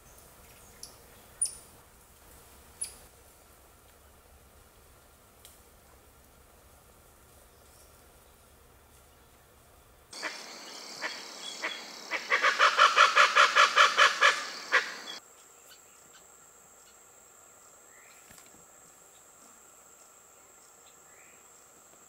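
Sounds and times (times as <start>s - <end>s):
high insect buzz: 10.1s - 22.0s
birds calling in chorus: 10.2s - 15.2s.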